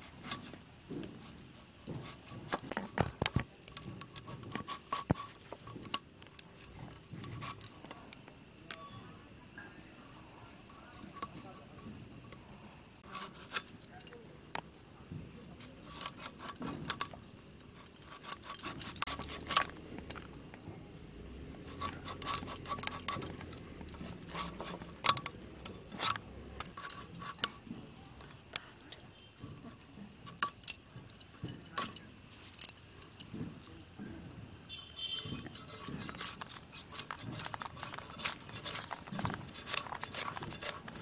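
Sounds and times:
fish scales scraping: 0:01.2 - 0:08.1, 0:10.4 - 0:14.1, 0:15.6 - 0:20.3, 0:21.6 - 0:27.7, 0:34.8 - 0:41.0.

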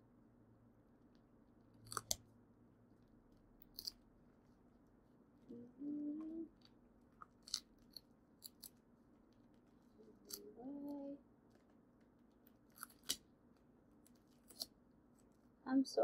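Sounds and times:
person humming: 0:05.5 - 0:06.6, 0:10.0 - 0:11.2.

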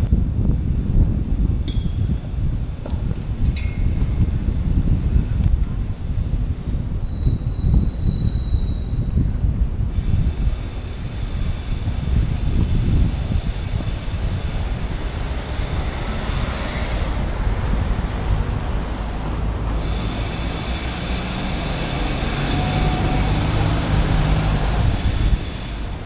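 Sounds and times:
low vehicle engine hum: 0:00.0 - 0:26.0
road traffic noise: 0:00.0 - 0:26.0
wind rushing over microphone: 0:00.0 - 0:26.0.

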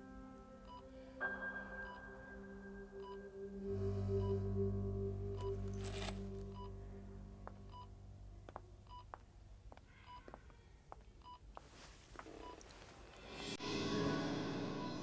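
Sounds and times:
patient monitor beeping: 0:00.6 - 0:00.9, 0:01.7 - 0:09.2, 0:12.2 - 0:12.9.

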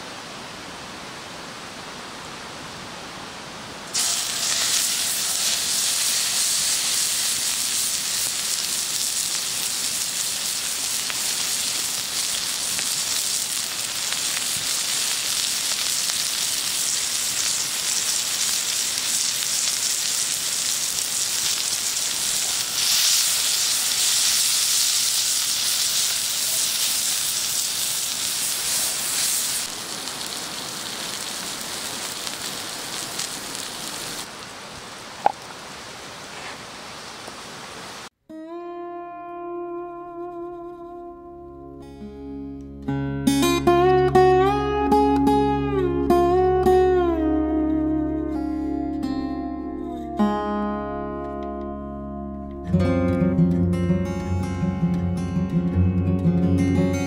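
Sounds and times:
steak sizzling on griddle: 0:03.9 - 0:34.3.

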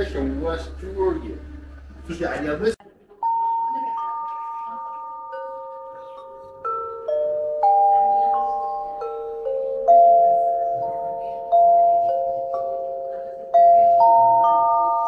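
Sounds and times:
metallophone notes ringing: 0:03.2 - 0:15.0.

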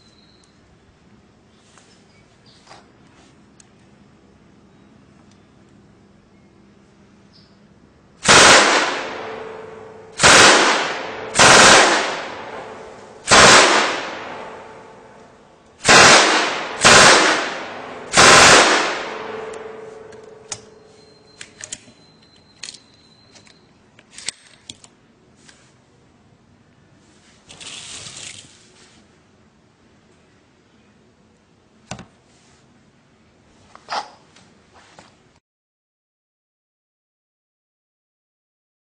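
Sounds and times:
rustle: 0:01.5 - 0:04.0, 0:08.7 - 0:22.0, 0:26.7 - 0:29.4, 0:32.2 - 0:35.4
automatic gunfire bursts: 0:08.2 - 0:09.6, 0:10.2 - 0:14.6, 0:15.8 - 0:19.9
gunfire echo: 0:08.2 - 0:15.2, 0:15.8 - 0:20.5.

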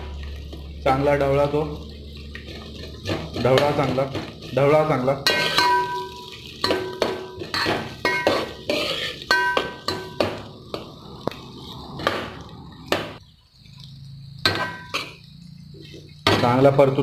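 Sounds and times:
metal ladle knocking on pot: 0:05.3 - 0:08.5, 0:09.3 - 0:10.5.

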